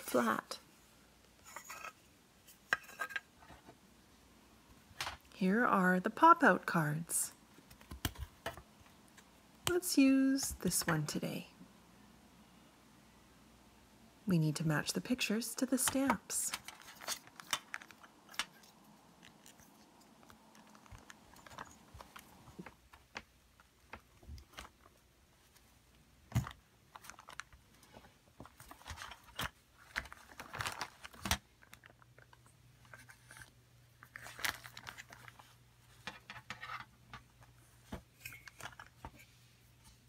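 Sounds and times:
soft squishing of dough: 16.7s - 36.1s.

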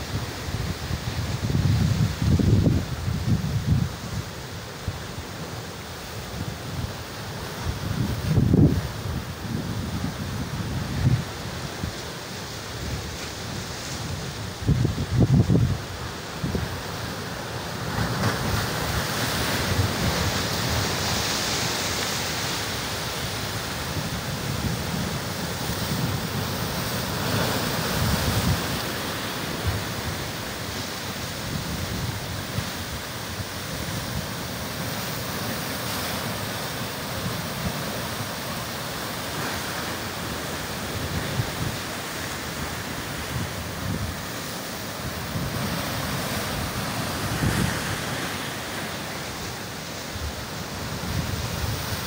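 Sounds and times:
surf breaking over rocks: 6.3s - 52.0s
wind buffeting microphone: 7.7s - 11.3s, 13.0s - 16.7s.

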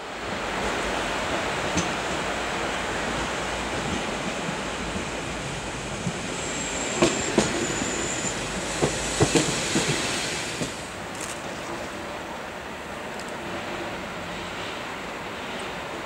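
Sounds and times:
train rolling past: 0.0s - 16.0s
high wheel squeal: 6.2s - 9.7s.

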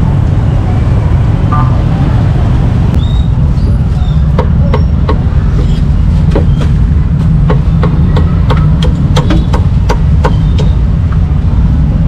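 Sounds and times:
cleaver chopping on wooden board: 6.3s - 10.8s.

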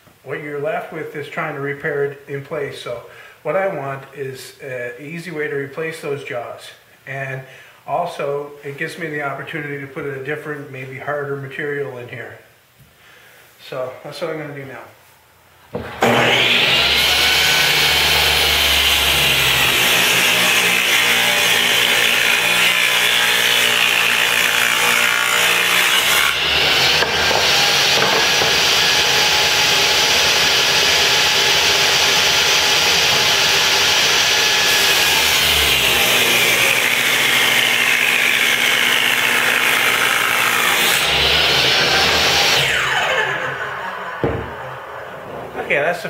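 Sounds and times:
table saw cutting wood: 15.8s - 45.9s.

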